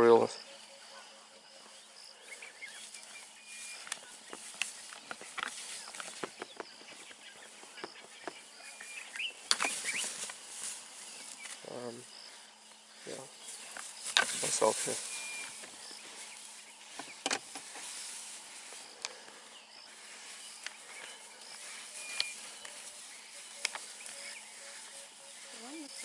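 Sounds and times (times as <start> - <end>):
scuffling in dry grass: 0.0 - 26.0.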